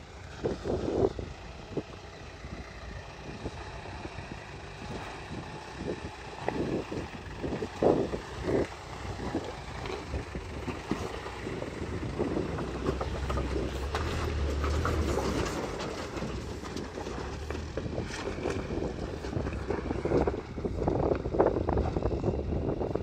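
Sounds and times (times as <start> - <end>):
truck engine running low: 0.0 - 23.0
stones crunching under tyres: 4.9 - 21.6.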